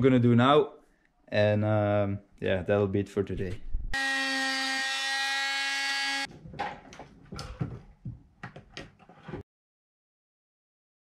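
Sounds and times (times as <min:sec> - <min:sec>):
power tool cutting metal: 0:04.0 - 0:06.3.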